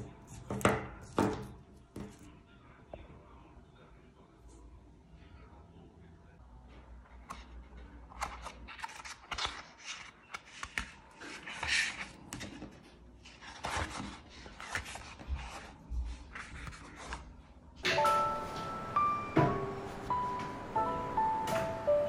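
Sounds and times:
paper sheets rustling: 8.1 - 17.4
music: 17.8 - 22.0.

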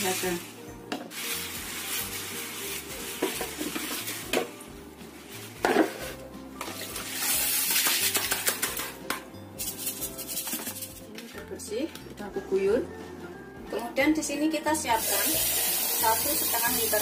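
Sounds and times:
background music: 0.0 - 17.0
water poured into wok: 6.9 - 8.3, 15.0 - 17.0.

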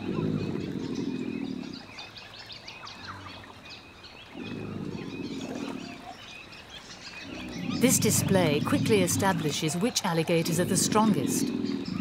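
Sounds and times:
alligator bellowing: 4.4 - 6.2, 7.2 - 12.0.

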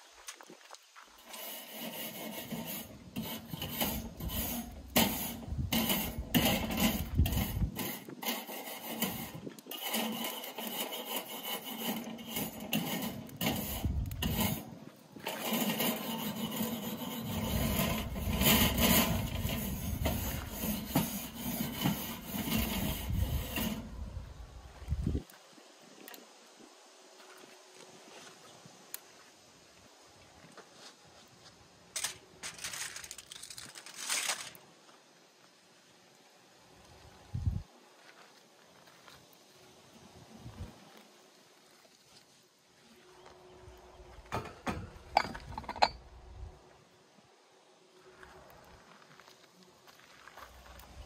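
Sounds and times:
rough scraping strokes: 1.1 - 24.4, 32.0 - 34.6.

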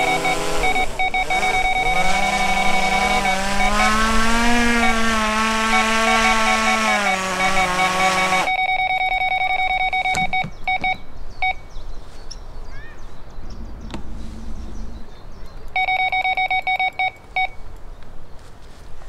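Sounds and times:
bite alarm beeping: 0.0 - 11.7, 15.7 - 17.6.

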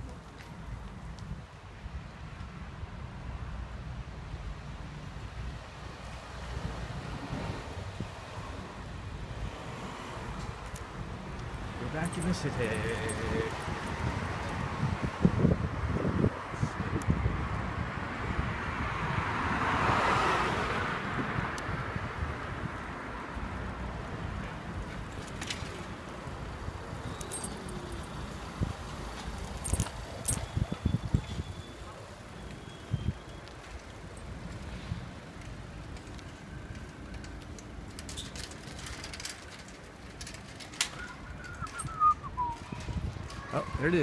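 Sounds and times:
wind rumbling on microphone: 0.0 - 33.6, 34.3 - 44.0
wind on microphone: 13.1 - 20.0, 27.7 - 31.7, 40.9 - 43.8
car passing: 16.5 - 30.4
bicycle tyres rumbling: 23.4 - 43.5.

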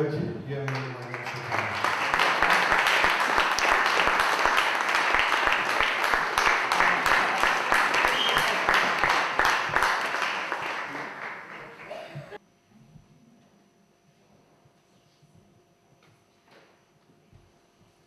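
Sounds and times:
audience applauding: 0.6 - 12.4.

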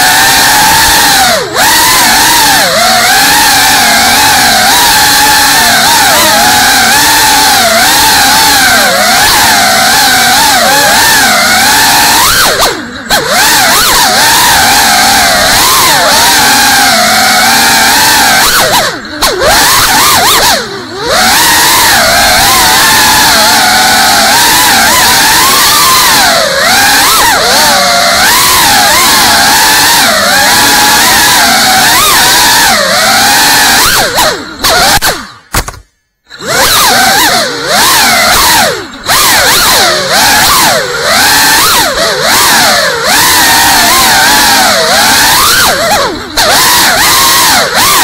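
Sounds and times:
drone motors whining: 0.0 - 48.0.

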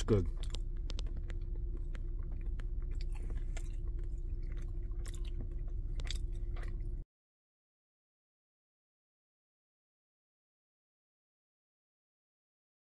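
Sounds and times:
low hum: 0.0 - 7.0
man chewing food: 0.0 - 7.0
wet mouth clicks and smacks: 0.3 - 6.8.

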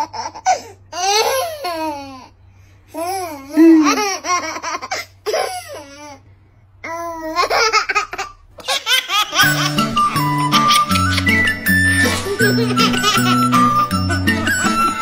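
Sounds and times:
baby laughing: 0.0 - 2.3, 3.0 - 6.2, 6.9 - 15.0
background music: 9.4 - 15.0.

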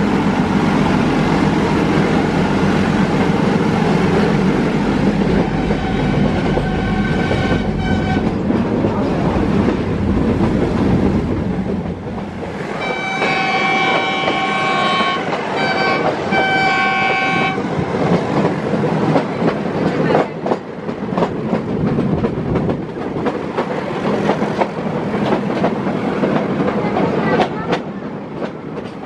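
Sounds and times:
steady train rumble: 0.0 - 29.0
locomotive horn blasts: 5.6 - 8.4, 12.8 - 17.6.

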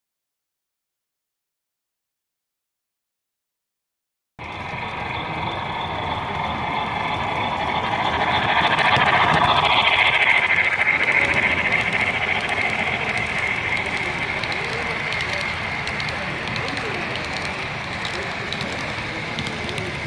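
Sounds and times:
model train wheels whining on track: 4.4 - 20.0.

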